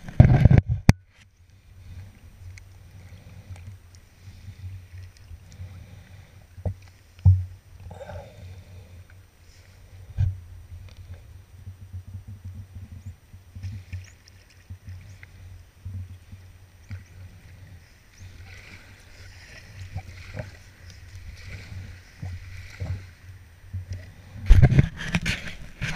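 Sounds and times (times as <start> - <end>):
low wind rumble on microphone: 0.0 - 25.9
paddle splashes and knocks: 18.3 - 23.2.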